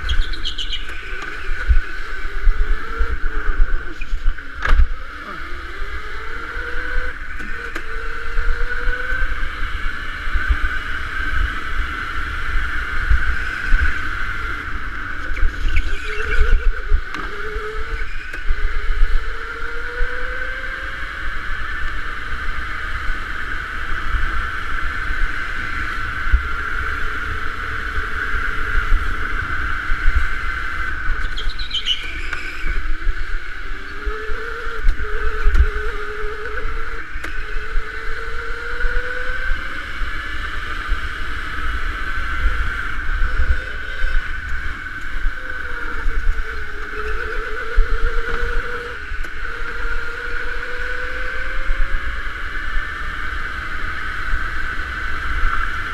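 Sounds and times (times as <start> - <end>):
electric motor whining: 0.0 - 22.4, 25.5 - 52.5
low rumble of tyres: 0.0 - 55.9
high squeal: 15.3 - 18.7, 31.2 - 39.4, 43.2 - 51.8.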